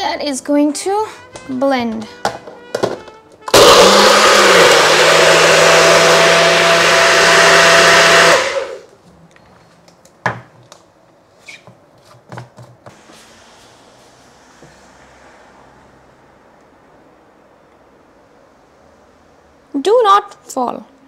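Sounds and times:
blender running: 3.5 - 8.9.

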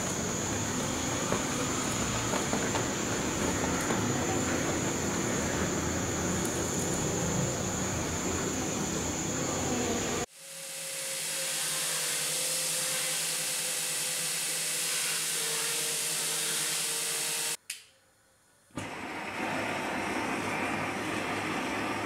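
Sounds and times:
gas burner flame: 0.0 - 9.6
belt sander grinding steel: 10.4 - 17.6.

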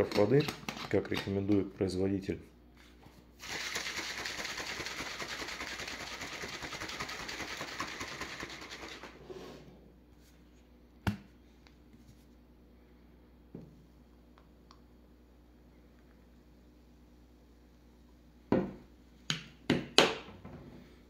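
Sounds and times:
shaker bottle sloshing rattle: 3.4 - 9.2.

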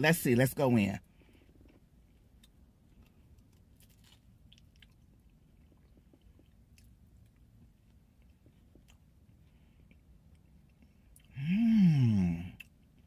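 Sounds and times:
faint chewing: 1.0 - 11.4
crisp crust crackling: 2.9 - 5.0.

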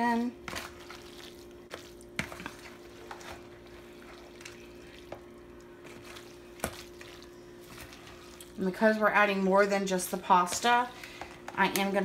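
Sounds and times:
faint steady hum: 0.0 - 12.0
spoon stirring wet pasta salad: 0.4 - 9.0.

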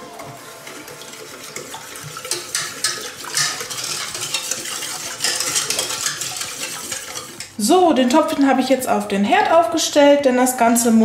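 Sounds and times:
whisk scraping metal pot: 0.0 - 8.8.

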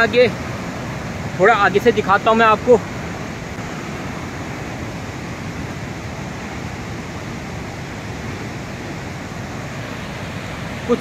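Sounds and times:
roar of flooded river: 0.0 - 11.0.

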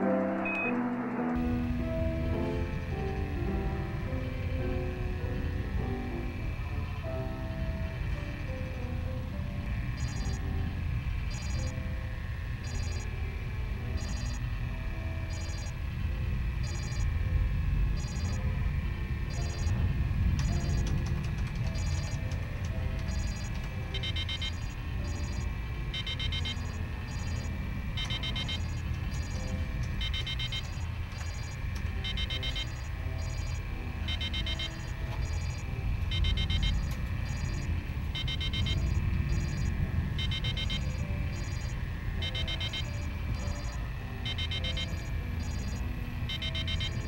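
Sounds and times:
low rumbling drone: 0.0 - 47.0
rapid electronic alarm beeps: 9.9 - 11.9, 12.5 - 13.2, 13.8 - 16.0, 16.6 - 17.3, 17.9 - 18.5, 19.2 - 47.0.

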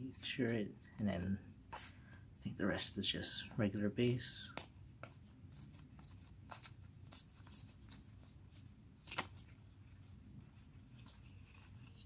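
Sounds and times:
trading cards flipped in hands: 4.5 - 12.0.

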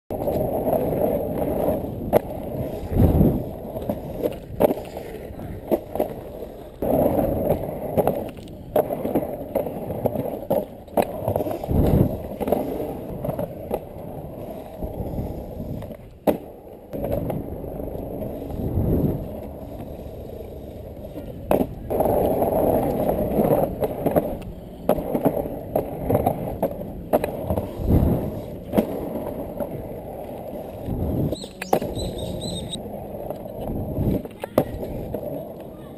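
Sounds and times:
wheels rolling over asphalt: 0.1 - 35.9.

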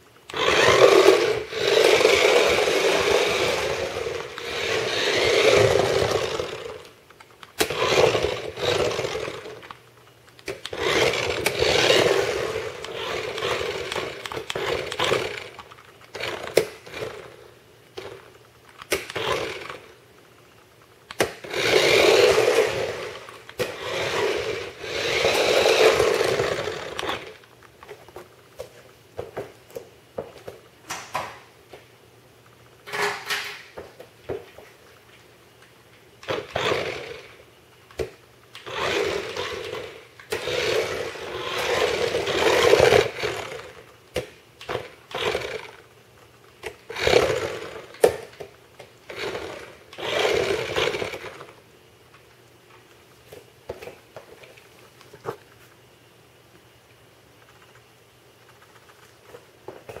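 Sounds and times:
toy car motor whirring: 0.3 - 6.9, 7.6 - 9.8, 10.6 - 17.4, 18.9 - 20.0, 21.3 - 27.4, 36.2 - 37.4, 38.6 - 43.9, 44.6 - 45.8, 46.7 - 48.2, 49.1 - 51.6.

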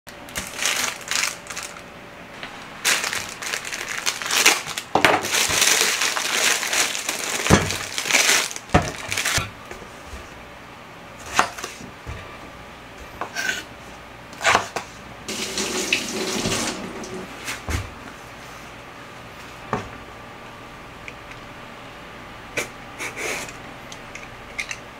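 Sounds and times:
plastic bag crinkling: 0.1 - 1.9, 2.8 - 9.5.

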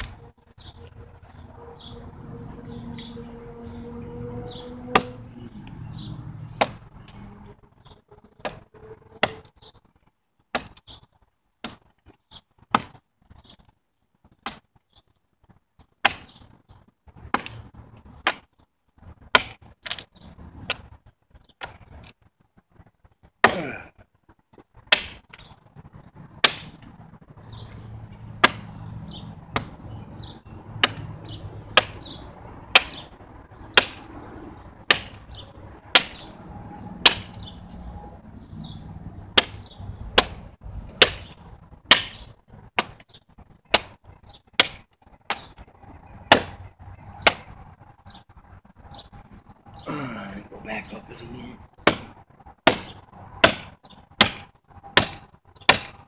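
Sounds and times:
blade chopping into wood: 6.6 - 6.9, 10.5 - 10.9, 11.6 - 11.9, 12.7 - 13.0, 14.4 - 14.7, 16.0 - 16.4, 17.3 - 17.6, 19.3 - 20.1, 28.4 - 28.7, 32.7 - 33.0, 34.9 - 35.2, 35.9 - 36.2, 39.4 - 43.0, 43.7 - 44.0, 44.6 - 45.6, 46.3 - 46.6, 47.2 - 47.5, 51.8 - 56.0.

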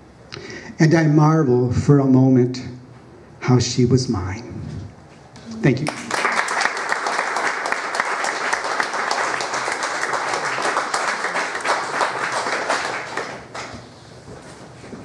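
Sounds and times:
audience applauding: 5.6 - 13.9.

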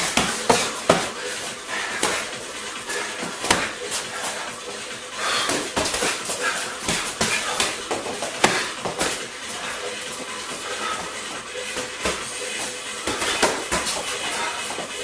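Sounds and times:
punches and kicks thudding: 0.0 - 1.2, 3.2 - 3.8, 5.5 - 9.3, 13.0 - 14.9.

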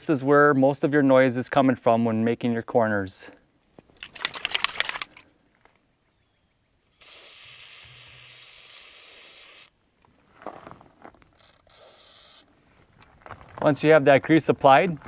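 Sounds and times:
aerosol can spraying hiss: 7.0 - 9.7, 11.7 - 12.4.

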